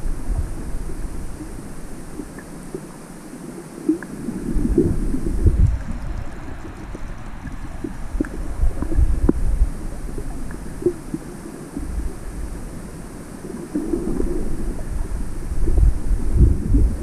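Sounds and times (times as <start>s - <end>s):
underwater rumble of water: 0.0s - 17.0s.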